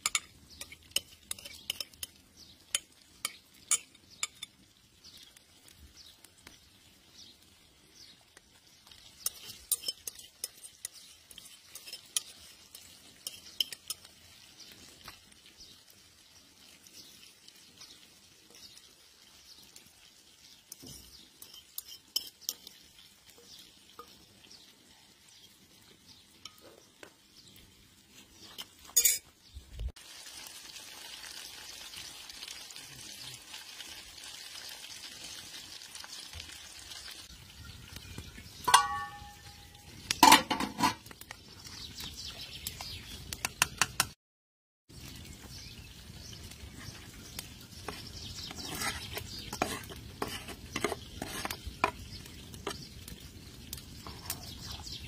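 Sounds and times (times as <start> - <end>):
metal utensil clinking on pan: 0.0 - 4.6, 9.2 - 14.2, 20.7 - 22.8, 26.4 - 27.1, 28.6 - 29.3, 37.8 - 41.1, 43.4 - 44.2
fish sizzling in oil: 0.0 - 44.2, 44.9 - 55.0.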